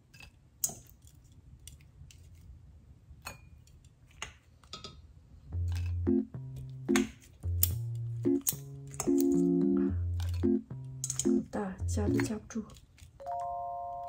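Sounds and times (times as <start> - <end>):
chopsticks tapping bowls: 5.6 - 11.4, 12.0 - 12.4
background music with low bass: 5.6 - 12.4.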